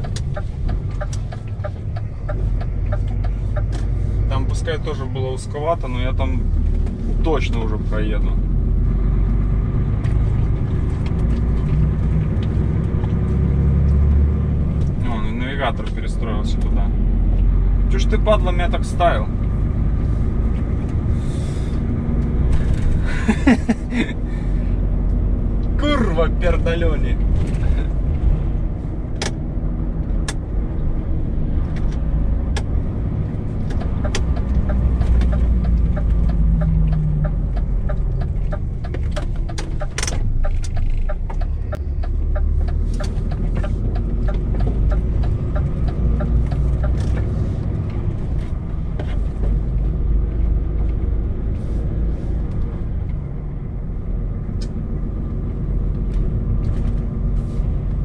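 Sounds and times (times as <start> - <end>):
clicks and rattles in cab: 0.0 - 4.0, 33.5 - 49.8
truck diesel engine rumble: 0.0 - 58.0.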